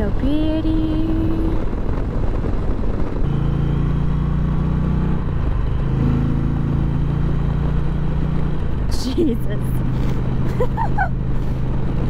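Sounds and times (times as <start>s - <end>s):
wind rush: 0.0s - 3.4s
motorcycle engine humming: 0.0s - 12.0s.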